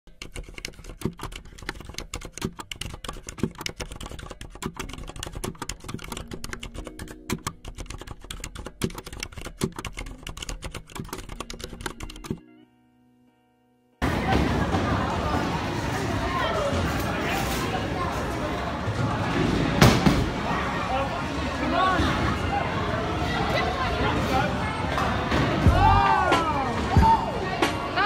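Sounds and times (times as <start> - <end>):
keyboard key clicks: 0.2 - 12.4.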